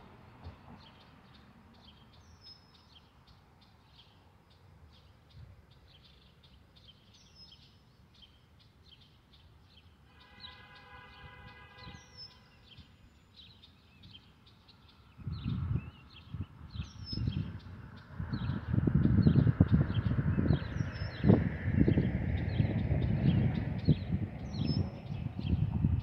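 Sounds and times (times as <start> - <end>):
distant train horn: 10.0 - 12.6
birds chirping and whistling: 11.8 - 26.0
low outdoor rumble: 15.3 - 26.0.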